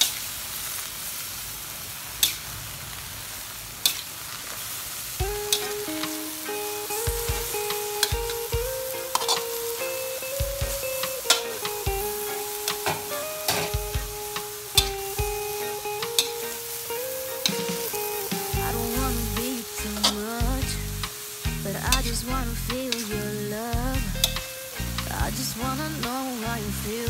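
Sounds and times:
food sizzling in a wok: 0.0s - 27.0s
background music: 5.2s - 27.0s
metal spatula scraping pan: 9.1s - 9.6s.

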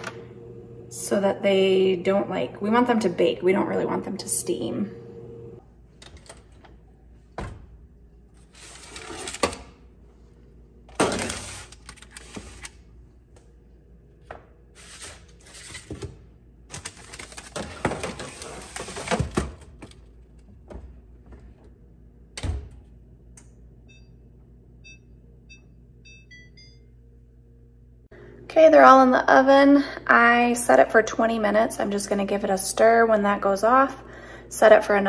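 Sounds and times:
parchment paper rustling: 16.7s - 19.4s.

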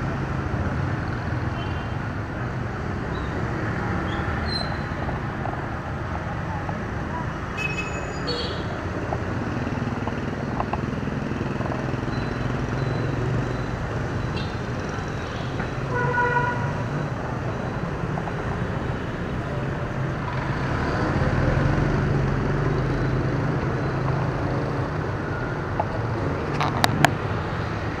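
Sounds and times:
motorbikes and cars passing: 0.0s - 28.0s
vehicle horn toot: 15.9s - 16.7s.

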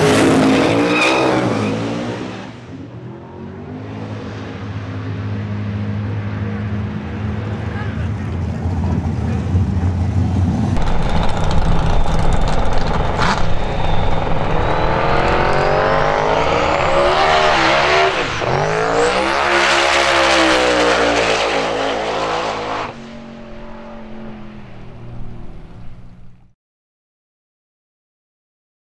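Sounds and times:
drag car engine accelerating: 0.0s - 26.5s
turbo whine: 10.8s - 26.5s.

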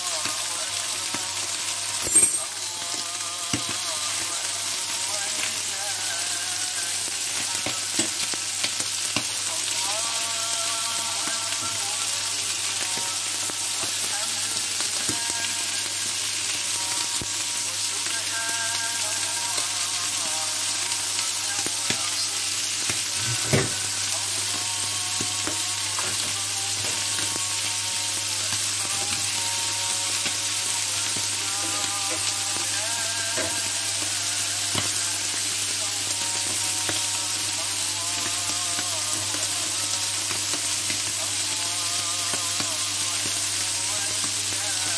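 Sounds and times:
skewers sizzling on griddle: 0.0s - 44.9s.

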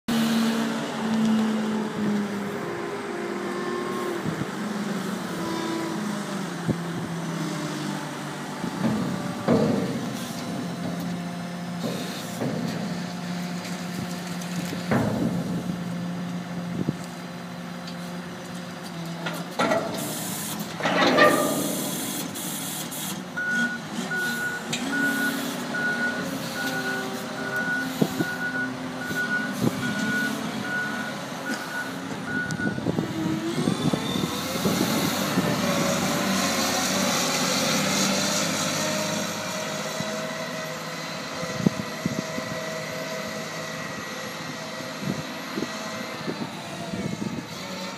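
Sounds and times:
wheel loader diesel engine: 0.1s - 47.9s
loud metal clanks: 20.7s - 22.2s
reversing alarm beeping: 23.4s - 32.8s.

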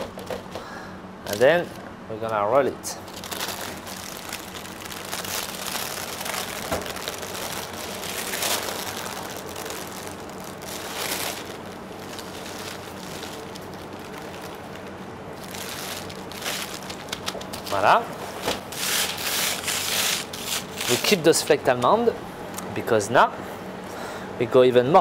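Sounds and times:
baking parchment rustling: 2.9s - 21.6s.

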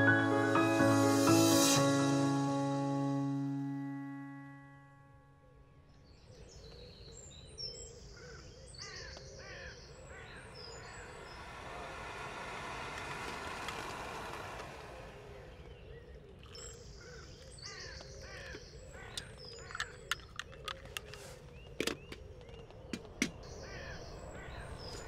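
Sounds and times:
birds chirping and singing: 5.8s - 11.4s, 15.3s - 25.0s
sharp clicks: 18.4s - 23.5s.

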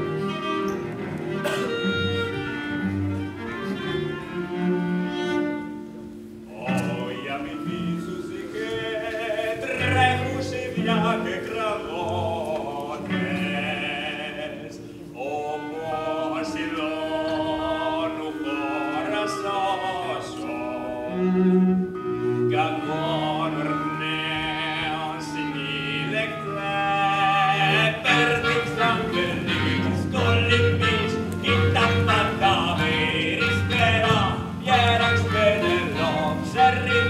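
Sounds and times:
cello notes: 0.0s - 37.0s
voices singing: 6.5s - 21.5s, 22.5s - 37.0s.

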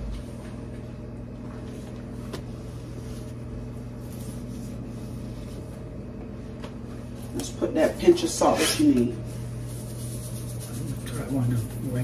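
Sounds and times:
cooktop electric hum: 0.0s - 12.0s.

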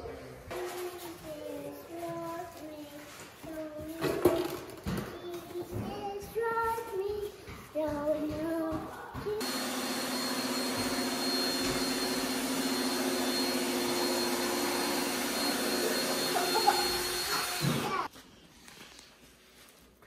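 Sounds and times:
child singing: 0.5s - 9.4s
vacuum cleaner running: 9.4s - 18.1s.

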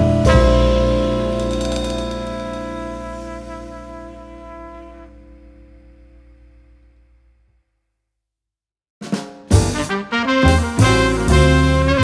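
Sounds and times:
band tune with brass and drums: 0.0s - 5.1s, 9.0s - 12.0s.

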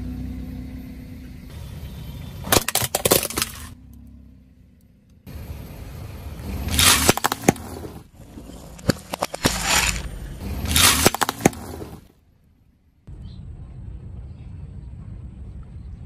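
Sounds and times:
sharp cracks of breaking plate: 2.5s - 3.8s, 6.7s - 8.0s, 10.7s - 12.0s
tyre crushing candies on a plate: 2.5s - 3.8s, 6.7s - 7.6s, 8.7s - 10.1s, 10.7s - 12.0s.

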